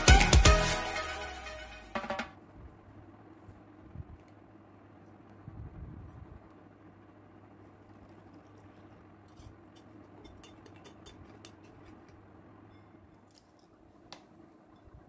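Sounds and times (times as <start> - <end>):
low steady hum: 0.0 - 15.0
spoon clinking against metal mug: 9.7 - 13.0.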